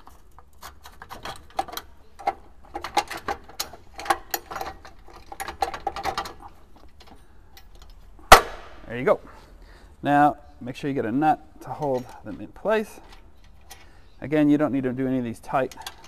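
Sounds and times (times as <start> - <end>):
metal bolts clicking and rattling: 0.0 - 8.4, 11.6 - 16.0.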